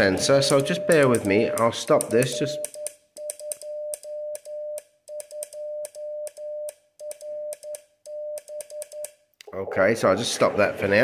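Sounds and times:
morse code tone: 0.2 - 1.6, 2.2 - 9.1.

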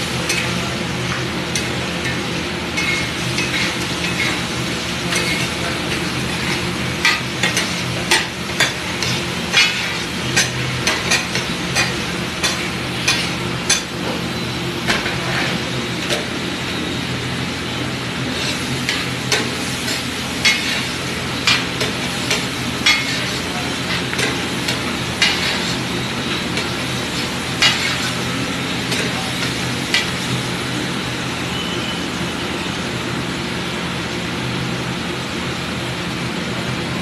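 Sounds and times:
steady sizzle: 0.0 - 34.4
metal masher clanking on griddle: 0.3 - 4.4, 5.0 - 14.1, 18.8 - 30.3.

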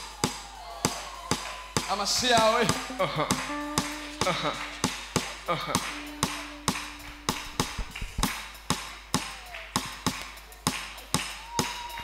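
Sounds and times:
sharp percussive hits: 2.4 - 10.2.

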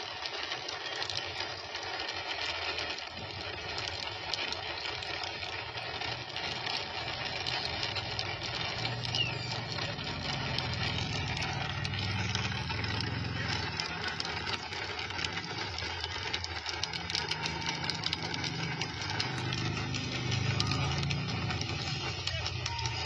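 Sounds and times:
low engine hum: 6.7 - 23.0.

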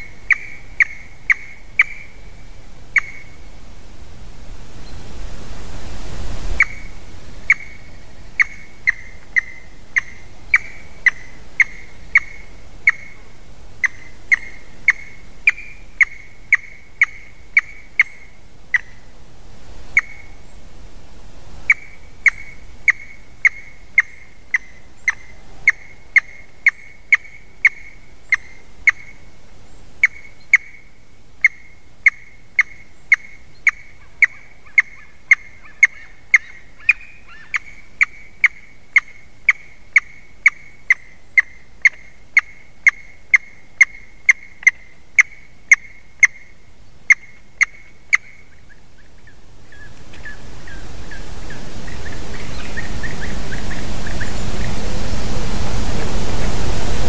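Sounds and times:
eaglet calling: 0.0 - 3.4, 6.6 - 19.1, 19.9 - 20.6, 21.6 - 29.3, 30.0 - 55.2.

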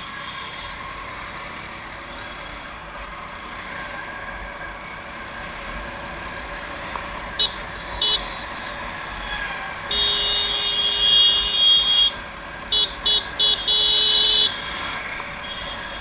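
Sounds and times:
engine and road noise: 0.0 - 16.0
vehicle horn honking: 9.9 - 14.7, 15.4 - 16.0.

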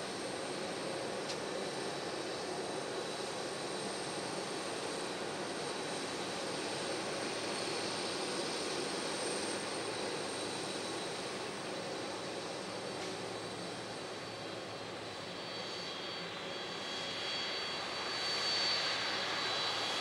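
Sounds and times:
high jet engine whine: 0.0 - 20.0
jet engines rushing: 0.0 - 20.0.

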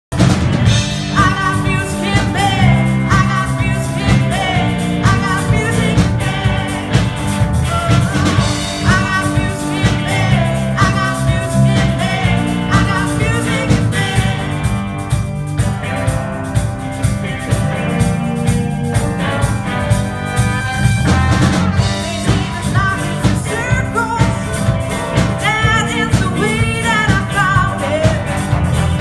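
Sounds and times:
rock band playing: 0.1 - 29.0
person singing: 1.1 - 14.8, 20.4 - 24.7, 25.3 - 28.5.

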